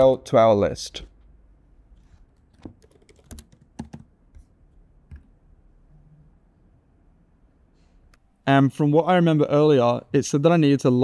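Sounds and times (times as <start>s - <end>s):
computer keyboard typing: 2.4s - 4.5s.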